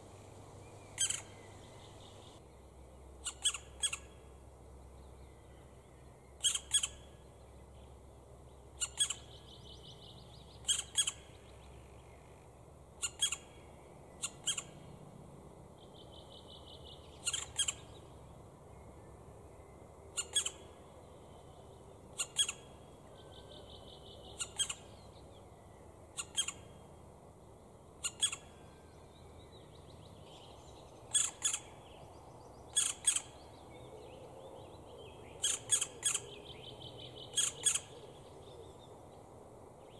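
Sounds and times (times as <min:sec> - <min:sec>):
woodpecker nestlings calling: 0:01.0 - 0:02.4, 0:03.2 - 0:04.1, 0:06.4 - 0:07.1, 0:08.8 - 0:09.3, 0:10.6 - 0:11.3, 0:13.0 - 0:13.6, 0:14.2 - 0:14.8, 0:17.2 - 0:17.9, 0:20.2 - 0:20.6, 0:22.2 - 0:22.7, 0:24.3 - 0:24.9, 0:26.2 - 0:26.6, 0:28.0 - 0:28.5, 0:31.1 - 0:31.8, 0:32.7 - 0:33.4, 0:35.4 - 0:36.3, 0:37.3 - 0:38.0.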